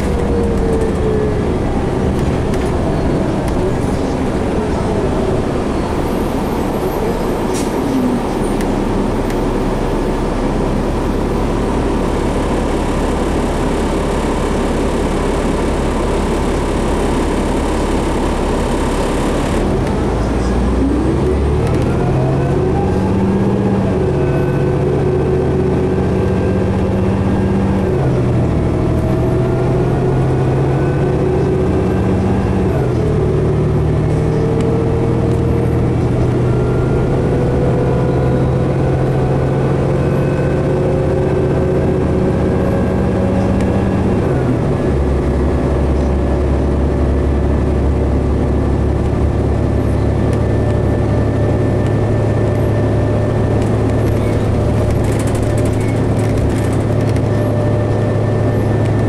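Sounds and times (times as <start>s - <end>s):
bus engine accelerating: 0.0s - 59.0s
rising whine: 0.0s - 59.0s
transmission gear shifts: 51.8s - 59.0s.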